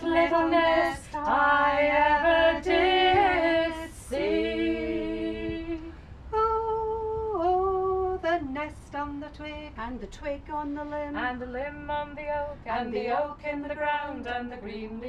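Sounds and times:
women singing in harmony: 0:00.0 - 0:15.0.

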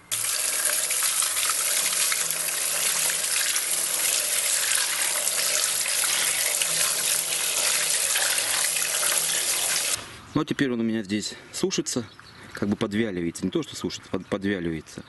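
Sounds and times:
tap water running: 0:00.0 - 0:10.0.

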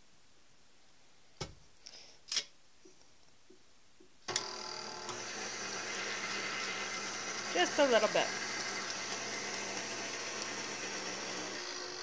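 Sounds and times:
mixer head clicks: 0:04.3 - 0:05.3
stand mixer motor whine: 0:04.3 - 0:12.0.

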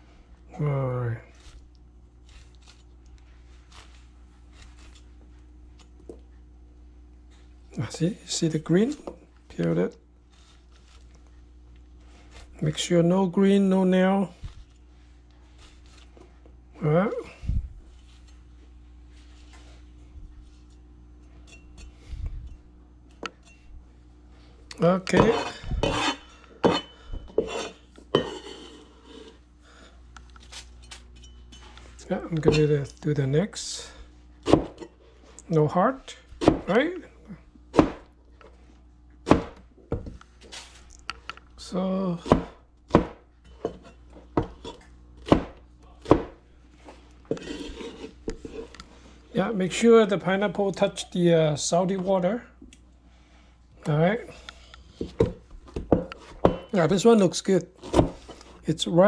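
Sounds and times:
knife chopping on cutting board: 0:25.1 - 0:28.5, 0:34.4 - 0:34.8, 0:36.4 - 0:36.8, 0:37.7 - 0:38.1, 0:39.2 - 0:40.2, 0:42.2 - 0:43.8, 0:44.4 - 0:46.4, 0:57.8 - 0:58.2.

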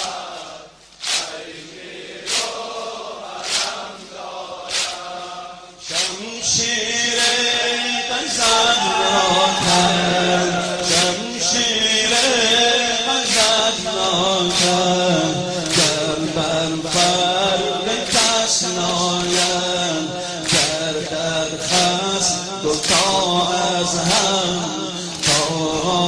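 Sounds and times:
group of voices chanting: 0:00.0 - 0:06.2, 0:07.2 - 0:11.6
sharp rhythmic beat: 0:00.0 - 0:26.0
person singing a lament: 0:05.9 - 0:26.0.

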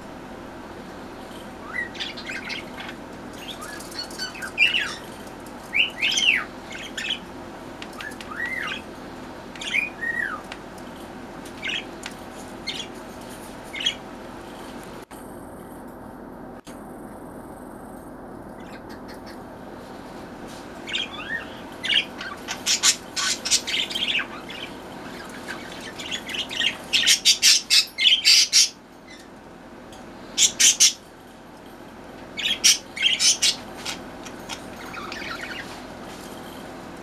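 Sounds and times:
budgerigars chirping and squawking: 0:01.6 - 0:05.1, 0:05.7 - 0:07.3, 0:08.0 - 0:08.9, 0:09.6 - 0:10.5, 0:11.6 - 0:11.9, 0:12.6 - 0:13.0, 0:13.7 - 0:14.0, 0:20.8 - 0:29.3, 0:30.3 - 0:31.0, 0:32.4 - 0:35.8.

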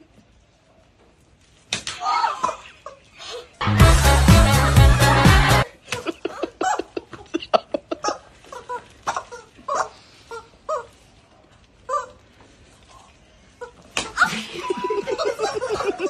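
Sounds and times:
background music: 0:03.6 - 0:05.7
women laughing and squealing: 0:13.6 - 0:16.0.

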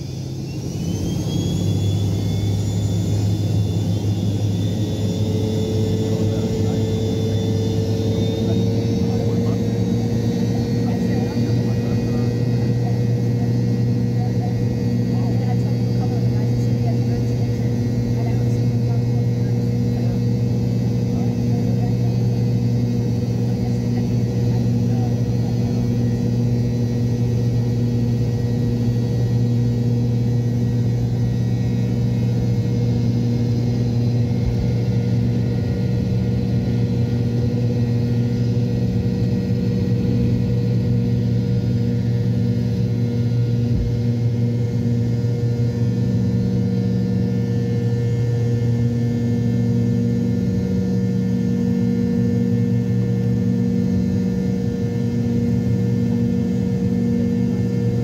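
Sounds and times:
jet engine drone: 0:00.0 - 0:58.0.

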